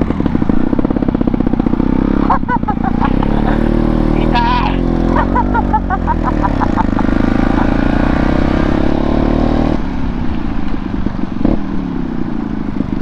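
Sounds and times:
motorcycle engine running: 0.0s - 13.0s
wind noise: 7.4s - 13.0s.

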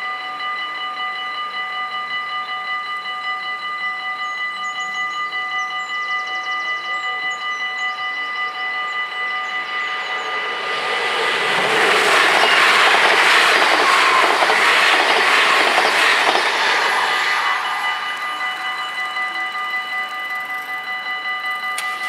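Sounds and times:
electric train passing: 0.0s - 22.0s
level crossing bells ringing: 0.0s - 22.0s.

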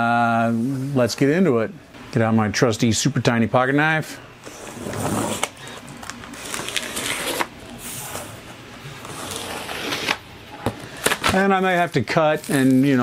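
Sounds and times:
knife slitting packing tape: 6.3s - 7.5s, 9.0s - 10.2s.

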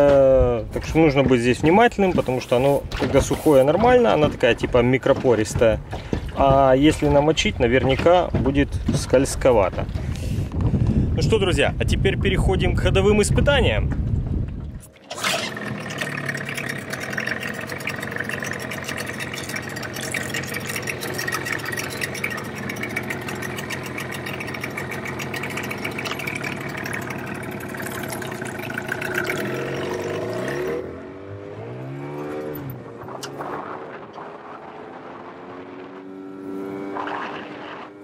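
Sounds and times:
outboard motor running: 0.0s - 11.0s, 14.3s - 31.4s.

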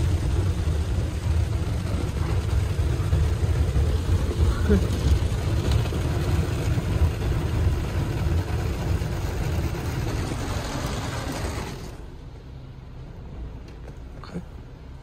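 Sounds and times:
low rumble: 0.0s - 13.6s
car wash water spraying: 0.0s - 14.1s.

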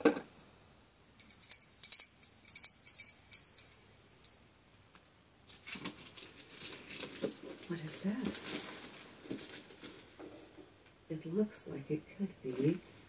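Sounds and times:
small bell jingling: 1.2s - 4.4s.

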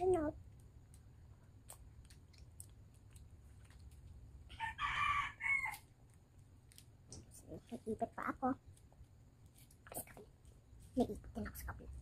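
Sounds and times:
rooster crowing: 4.5s - 5.9s.

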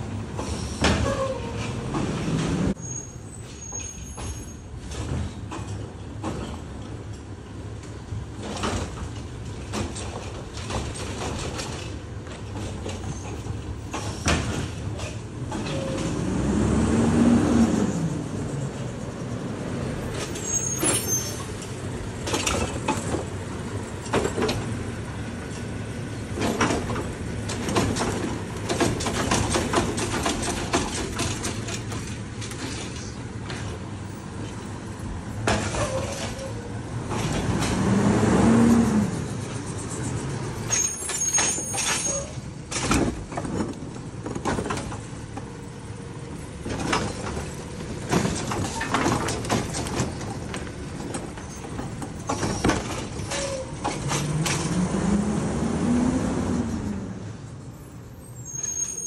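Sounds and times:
carts clanking and banging: 0.0s - 19.0s, 20.0s - 39.7s, 40.3s - 55.7s
garbage truck engine revving: 15.4s - 18.8s, 37.0s - 40.6s, 52.7s - 57.3s.

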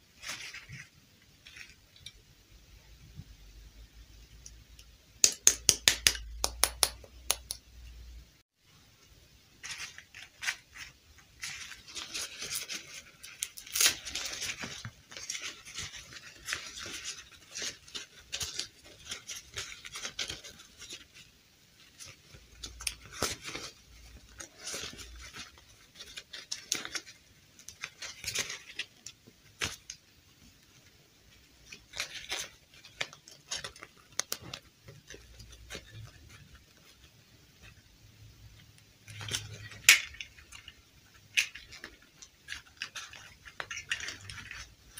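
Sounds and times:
plastic doll limbs clicking: 4.4s - 7.7s.

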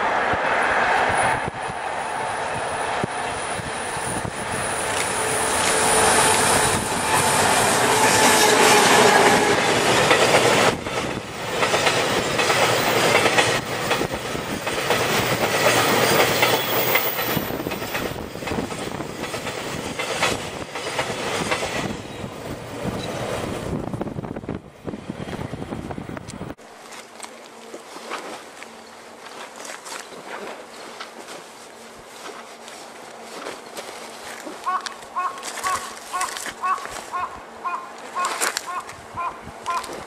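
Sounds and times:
electric locomotive whine: 0.0s - 29.4s
train wheels clickety-clack: 3.0s - 23.4s.

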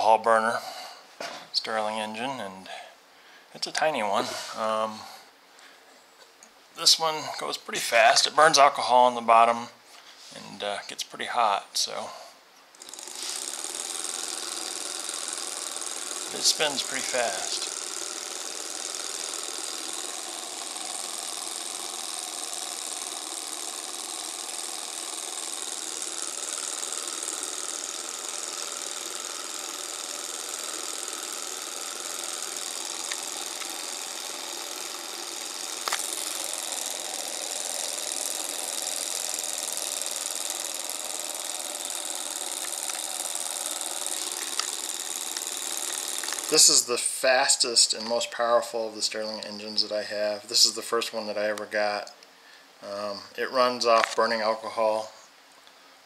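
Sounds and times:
small engine mechanical clatter: 11.9s - 52.2s, 52.9s - 55.2s
sharp click: 35.3s - 36.4s, 53.9s - 54.3s.

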